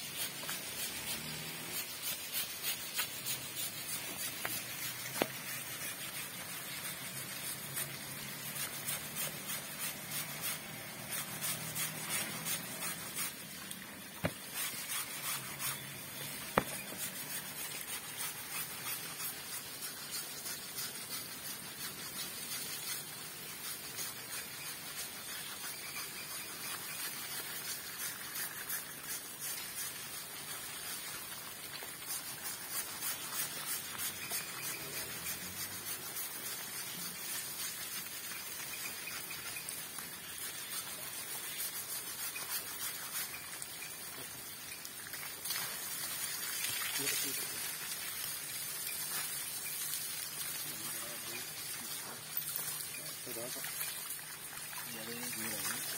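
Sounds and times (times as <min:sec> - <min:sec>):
hands scrubbing wet skin: 0:00.0 - 0:44.4
water splashing on ground: 0:42.4 - 0:55.9.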